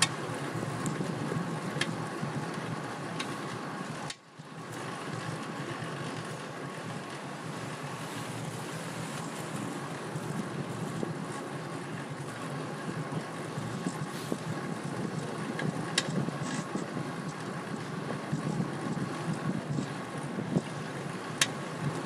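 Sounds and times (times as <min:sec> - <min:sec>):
road noise: 0:00.0 - 0:22.0
wind on microphone: 0:06.9 - 0:22.0.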